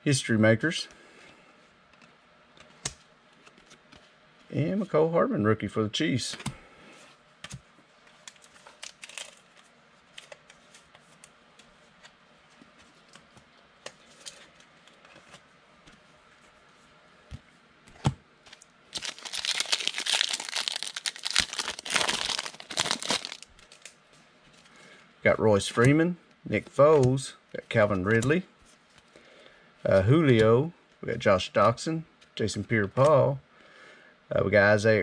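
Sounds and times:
wrapper torn open and crinkled: 0:08.7 - 0:09.5, 0:18.9 - 0:24.0.

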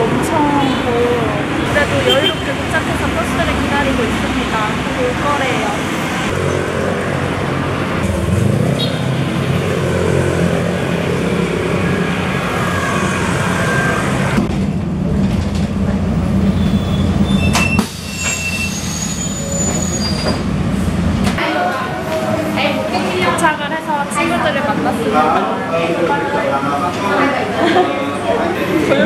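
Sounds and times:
street traffic: 0:00.0 - 0:29.0
brief high squeals: 0:16.6 - 0:20.4.

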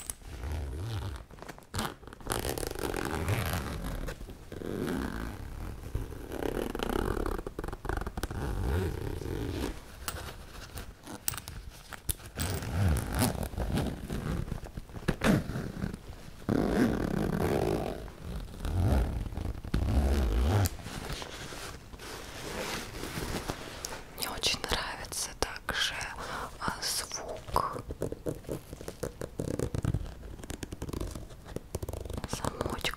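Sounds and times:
metal zipper pulls clicking: 0:11.0 - 0:14.4
zipper drawn on fabric bag: 0:15.1 - 0:23.4.

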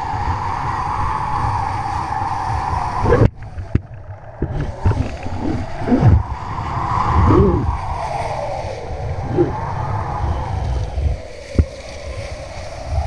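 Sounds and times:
board slapping water: 0:00.0 - 0:07.7
water rushing under board: 0:00.0 - 0:13.0
wind buffeting camera: 0:00.0 - 0:13.0.

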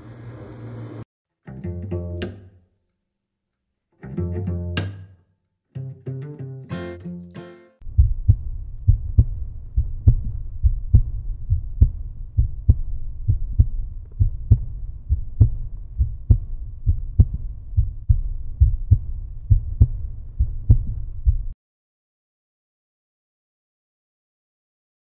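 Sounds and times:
low rumble: 0:07.8 - 0:21.6
deep heavy thuds: 0:07.9 - 0:21.6.

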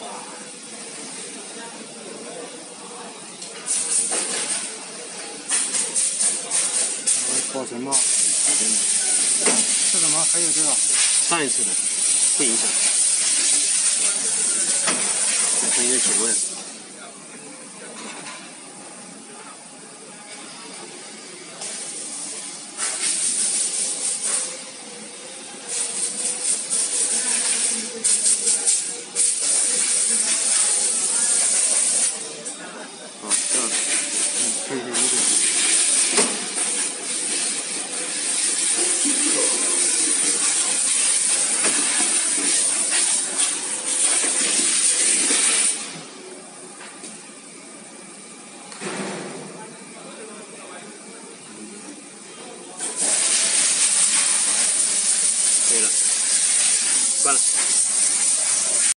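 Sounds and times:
machinery hissing: 0:05.4 - 0:16.9, 0:21.6 - 0:46.3, 0:52.8 - 0:58.9.

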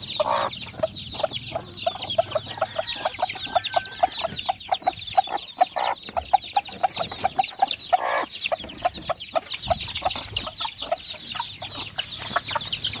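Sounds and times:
chickens clucking: 0:00.0 - 0:13.0
high falling chicken calls: 0:00.0 - 0:13.0
rough chicken calls: 0:00.0 - 0:13.0.

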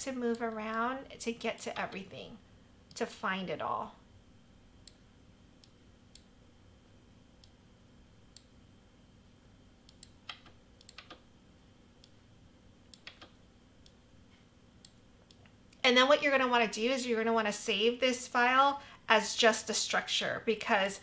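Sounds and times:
faint room hum: 0:00.0 - 0:21.0
computer mouse clicks: 0:09.8 - 0:11.2, 0:12.9 - 0:14.0.

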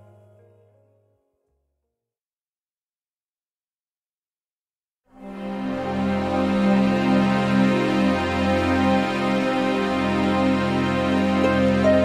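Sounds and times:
background music: 0:00.0 - 0:01.7, 0:05.2 - 0:12.0.

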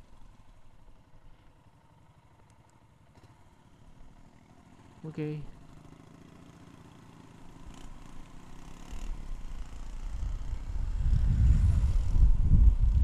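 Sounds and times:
scooter engine: 0:00.0 - 0:13.0
wind rumble on microphone: 0:09.4 - 0:13.0.

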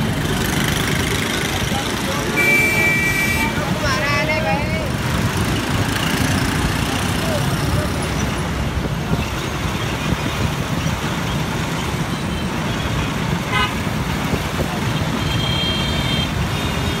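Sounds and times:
bus engine rumble: 0:00.0 - 0:17.0
road traffic: 0:00.0 - 0:17.0
vehicle horn toot: 0:02.3 - 0:03.6, 0:13.5 - 0:13.8, 0:15.2 - 0:17.0.

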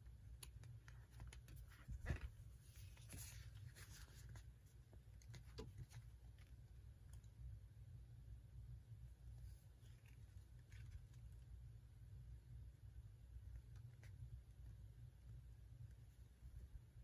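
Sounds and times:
low steady hum: 0:00.0 - 0:17.0
paper magazine rustling: 0:00.8 - 0:04.6.

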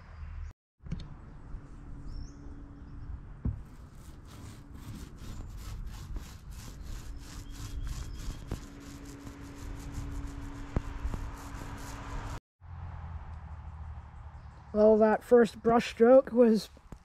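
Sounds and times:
paint roller rubbing on wood: 0:03.6 - 0:12.4.

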